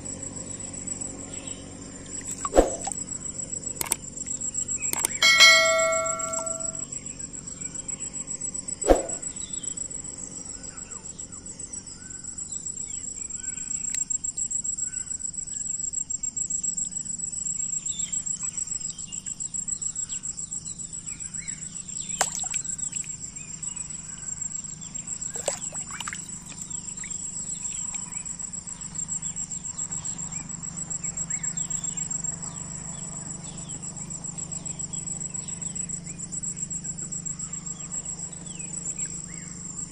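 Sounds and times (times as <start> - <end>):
insects trilling: 0.0 - 39.9
faint chirps: 0.5 - 7.1, 17.6 - 39.9
short electronic chime: 5.2 - 6.8.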